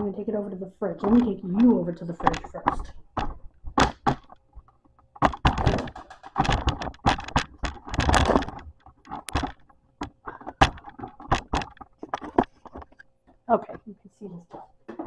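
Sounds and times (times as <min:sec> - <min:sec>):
items clattering on shelves: 0:01.0 - 0:13.0
rustling and knocking of handling: 0:01.0 - 0:13.9, 0:14.5 - 0:15.0.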